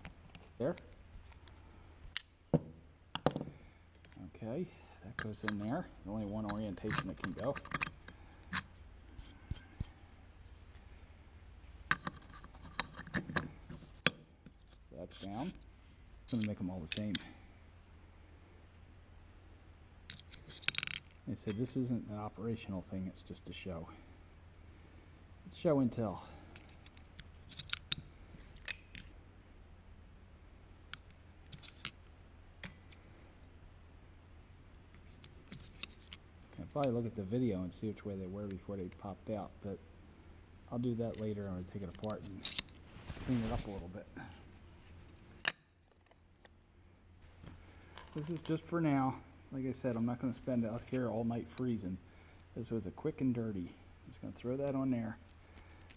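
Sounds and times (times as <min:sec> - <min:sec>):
small parts clicking: 0:00.0 - 0:02.4, 0:05.1 - 0:09.9, 0:11.8 - 0:15.6, 0:16.3 - 0:17.3, 0:20.1 - 0:21.6, 0:26.5 - 0:29.2, 0:30.9 - 0:32.0, 0:34.9 - 0:37.0, 0:41.1 - 0:42.8, 0:54.6 - 0:55.9
low steady hum: 0:00.0 - 0:55.9
light clicks of parts fitted: 0:16.3 - 0:17.3, 0:35.2 - 0:37.0.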